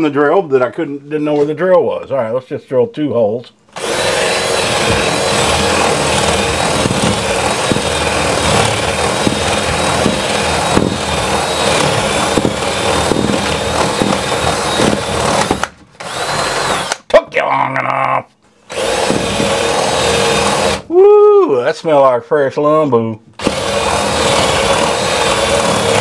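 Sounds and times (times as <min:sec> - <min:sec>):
drill boring through wood: 0:03.7 - 0:17.0, 0:18.7 - 0:21.1, 0:23.4 - 0:26.0.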